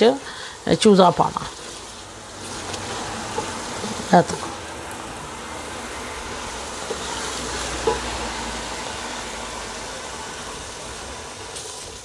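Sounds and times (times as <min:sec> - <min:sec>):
food sizzling in oil: 0:00.0 - 0:12.0
wooden spoon stirring: 0:01.2 - 0:08.8.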